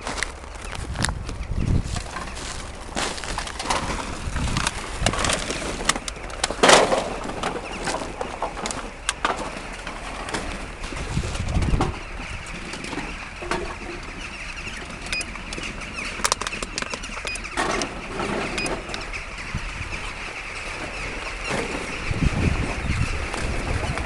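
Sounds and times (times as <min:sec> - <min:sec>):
rustling handling noise: 0:00.0 - 0:13.7
wind buffeting: 0:00.0 - 0:24.0.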